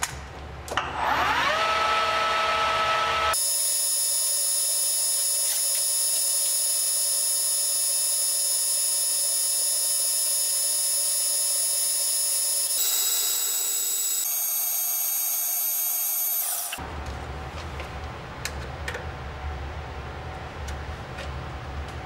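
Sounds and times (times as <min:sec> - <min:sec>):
metal lathe whine: 0:01.0 - 0:16.8.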